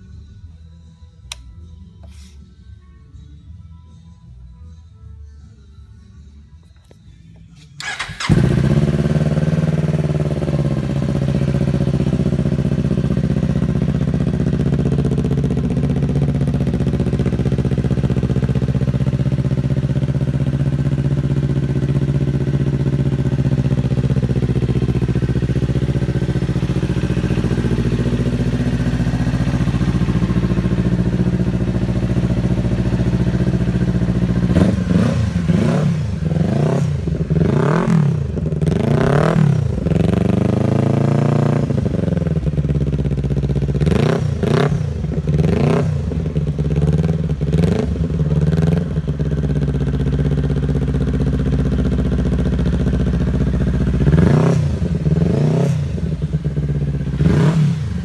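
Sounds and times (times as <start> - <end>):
motorcycle throttle blips: 7.6 - 35.8
motorcycle engine idling: 7.8 - 58.0.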